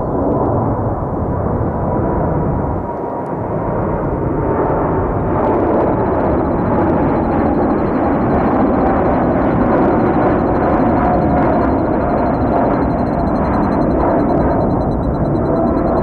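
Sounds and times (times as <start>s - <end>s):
engine whines: 5.8s - 16.0s.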